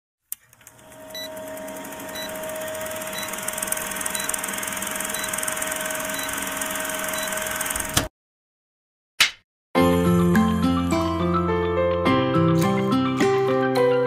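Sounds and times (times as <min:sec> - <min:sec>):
film projector clattering: 0:00.4 - 0:08.1.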